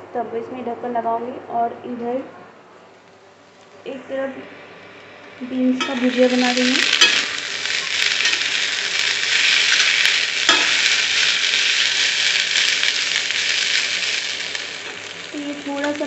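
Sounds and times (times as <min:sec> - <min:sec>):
vegetables sizzling in a pan: 0:04.5 - 0:16.0
steel spatula scraping a pan: 0:05.8 - 0:15.0.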